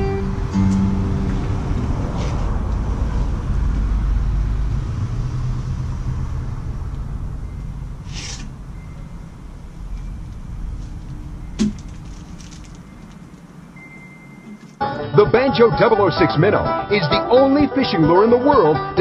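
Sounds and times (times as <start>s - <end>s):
acoustic guitar chord strummed: 0.0s - 1.6s
low rumbling noise: 0.0s - 14.8s
short hiss: 8.0s - 8.5s.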